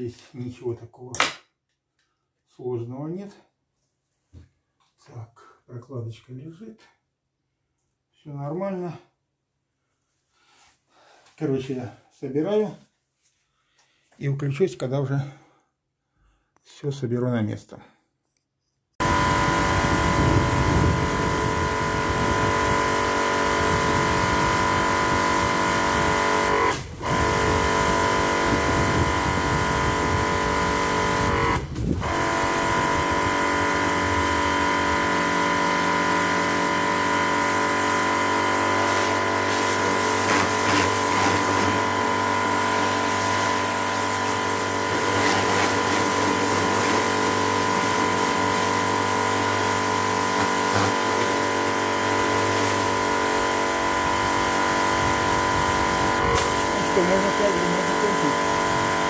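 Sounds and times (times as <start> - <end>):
pressure washer motor humming: 19.0 - 59.0
water jet spraying: 38.6 - 59.0.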